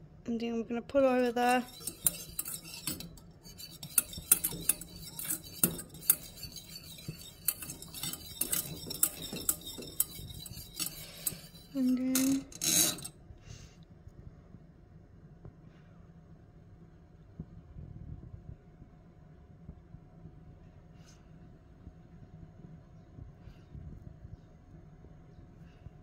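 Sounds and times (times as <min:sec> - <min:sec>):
whisk clinking against saucepan: 0:01.2 - 0:13.1.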